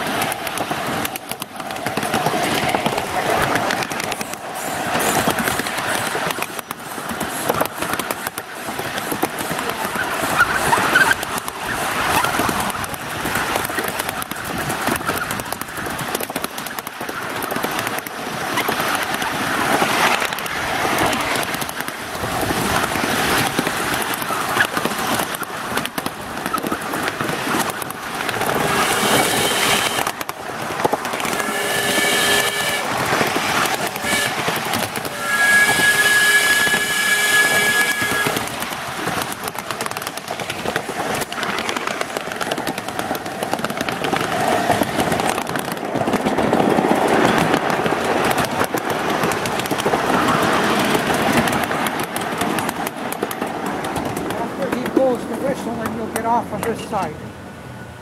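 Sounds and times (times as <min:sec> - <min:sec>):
miniature train clattering on track: 0:00.0 - 0:57.2
locomotive whistle: 0:28.7 - 0:30.2, 0:31.2 - 0:33.0, 0:33.9 - 0:38.5.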